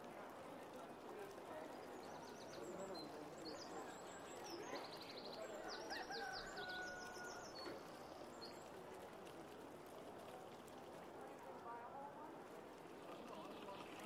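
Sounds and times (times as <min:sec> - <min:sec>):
faint steady background noise: 0:00.0 - 0:14.0
small birds chirping in trills: 0:01.5 - 0:08.8.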